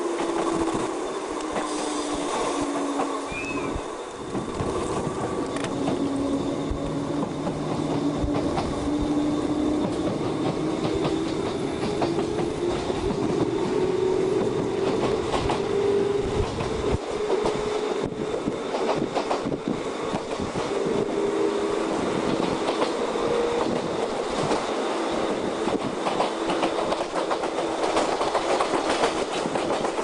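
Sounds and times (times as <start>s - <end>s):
electric train whine: 0.0s - 30.0s
train running noise: 0.0s - 30.0s
wheels clicking over rail joints: 9.6s - 13.6s, 25.6s - 30.0s.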